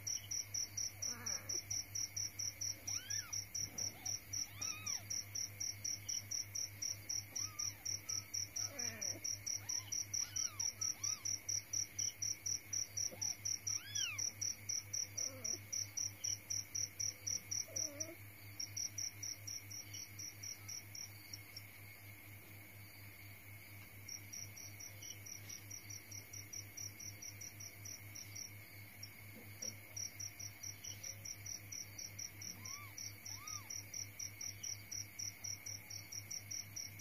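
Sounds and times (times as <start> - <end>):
cricket chirping: 0.0 - 37.0
kitten mewing: 2.8 - 5.0, 7.4 - 11.2, 32.5 - 33.7.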